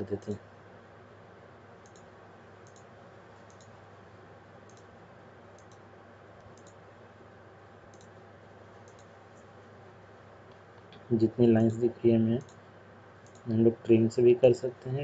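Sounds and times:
low room hum: 0.0 - 15.0
computer mouse clicking: 1.8 - 3.8, 4.7 - 4.9, 5.6 - 5.8, 6.4 - 6.8, 7.9 - 8.2, 8.8 - 9.5, 12.4 - 12.6, 13.2 - 13.5.

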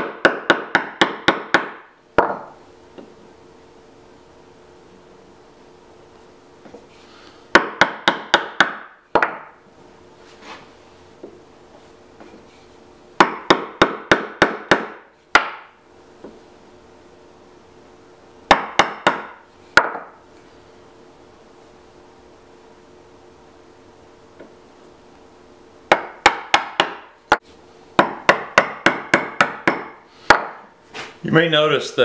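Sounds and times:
mallet striking chisel: 0.0 - 2.6, 7.6 - 9.6, 13.2 - 15.7, 18.5 - 20.2, 25.9 - 27.4, 28.0 - 30.6.

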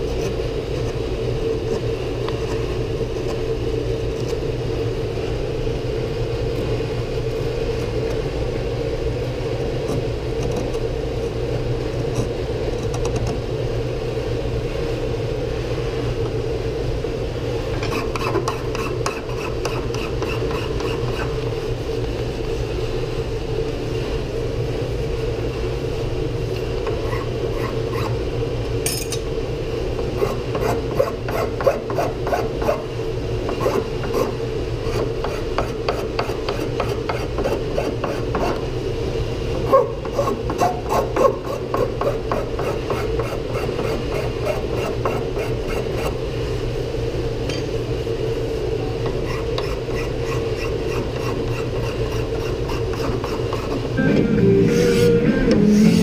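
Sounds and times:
low background hum: 0.0 - 56.0
hand file rasping on wood: 17.9 - 21.3, 30.2 - 32.8, 33.6 - 38.6, 40.1 - 46.2, 49.3 - 53.8.

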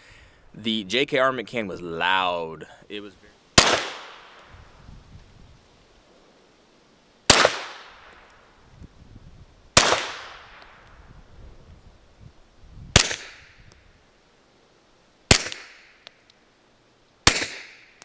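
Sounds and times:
suppressed pistol shots: 3.6 - 4.5, 7.3 - 8.2, 9.8 - 10.8, 12.9 - 13.5, 15.3 - 15.9, 17.2 - 17.9.

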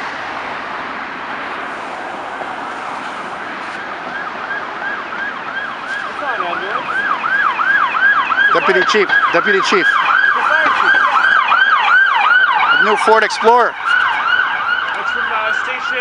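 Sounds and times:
city traffic noise: 0.0 - 16.0
fire engine siren yelping: 2.1 - 16.0
low siren tone sweeping down: 2.4 - 16.0.

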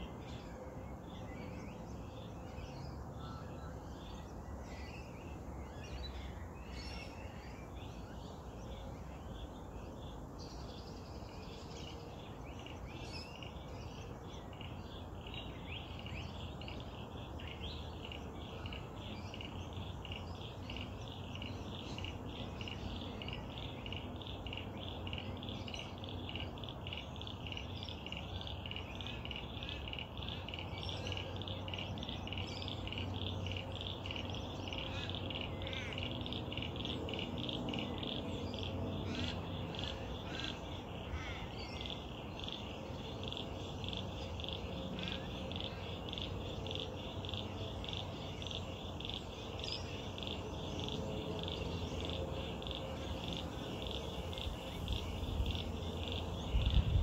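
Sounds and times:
chorus of frogs trilling: 14.2 - 57.0.

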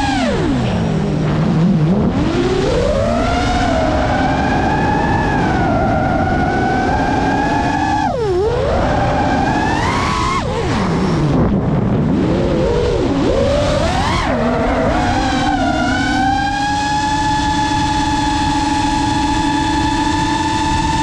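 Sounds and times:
drone motors whining: 0.0 - 21.0
steady low noise: 0.0 - 21.0.

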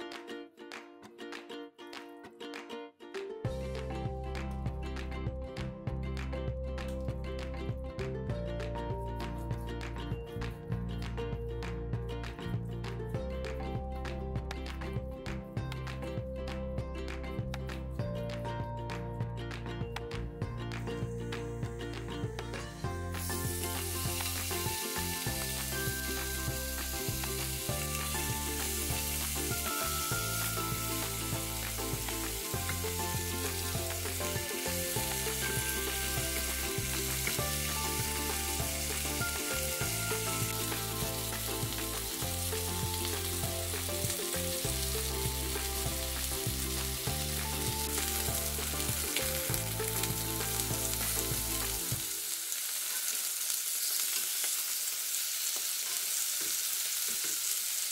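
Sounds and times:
background music with bass line: 3.4 - 52.1
chicken sizzling on grill pan: 22.8 - 57.9.

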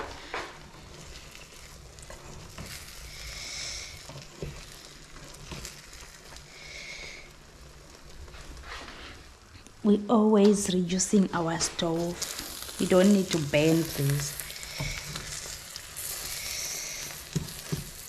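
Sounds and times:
omelette sizzling in a frying pan: 0.0 - 9.8, 10.8 - 18.0
spatula tapping a pan: 17.3 - 18.0.

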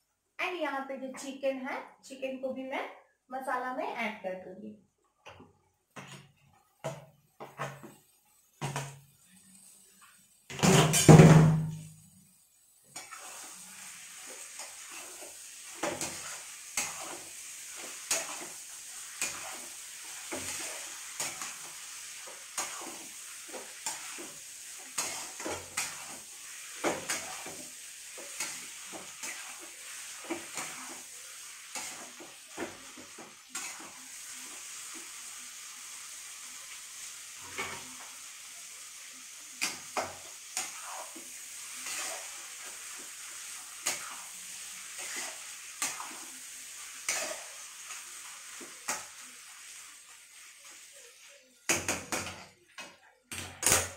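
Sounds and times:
frying sizzle: 5.2 - 53.9
spatula scraping a steel pan: 13.0 - 13.6, 22.6 - 27.6, 28.2 - 31.0, 40.0 - 42.4, 44.9 - 46.2, 47.0 - 47.5.

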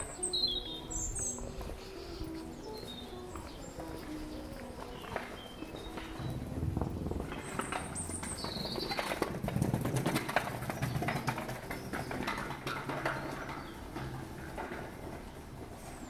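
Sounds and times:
high bird chirps: 0.0 - 3.8
footsteps on brick paving: 0.0 - 16.0
street ambience: 0.0 - 16.0.

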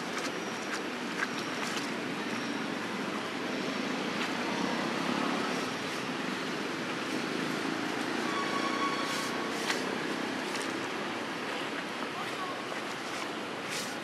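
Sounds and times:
rushing outdoor background noise: 0.0 - 14.0.

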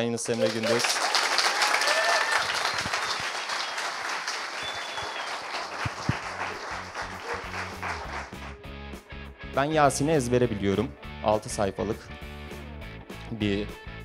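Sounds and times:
audience applauding: 0.0 - 8.6
music: 6.0 - 14.0.

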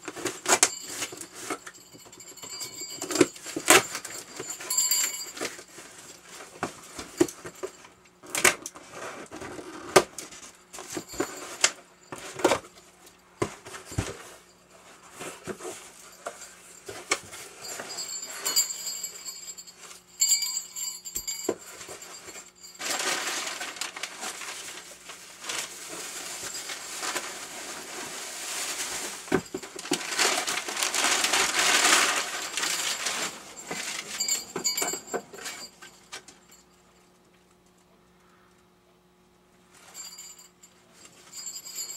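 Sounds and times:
crinkling packing paper: 22.8 - 34.5.

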